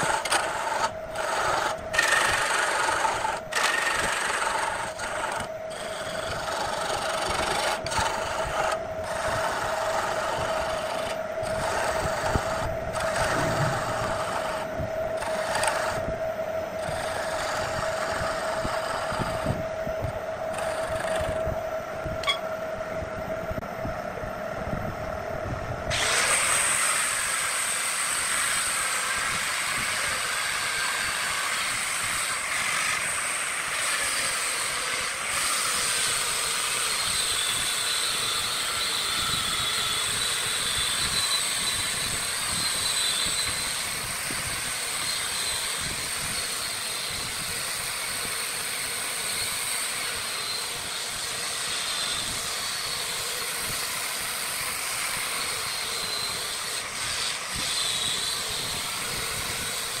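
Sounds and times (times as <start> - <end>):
angle grinder whine: 0.0 - 24.7, 25.9 - 60.0
sanding hiss: 25.9 - 60.0.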